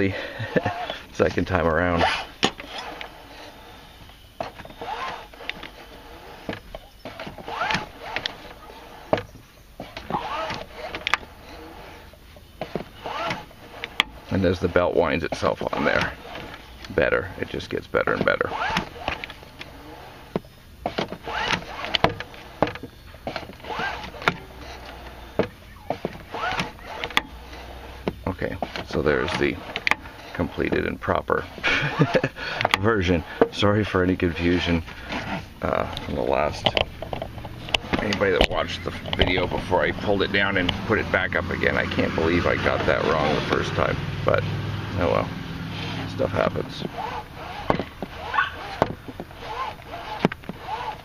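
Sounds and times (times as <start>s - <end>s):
seatbelt webbing zipping: 0.0s - 44.4s, 45.0s - 51.0s
seatbelt retractor clicks: 4.0s - 17.0s, 18.1s - 30.9s, 34.8s - 41.2s, 45.8s - 51.0s
seatbelt sharp clicks: 46.9s - 51.0s.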